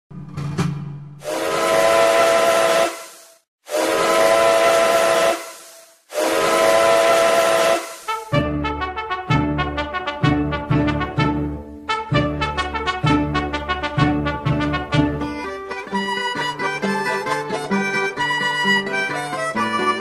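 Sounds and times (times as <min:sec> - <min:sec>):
steam hissing: 0:01.2 - 0:08.4
steam locomotive whistle blasts: 0:01.2 - 0:08.7
brass music with quick beat: 0:06.1 - 0:15.4.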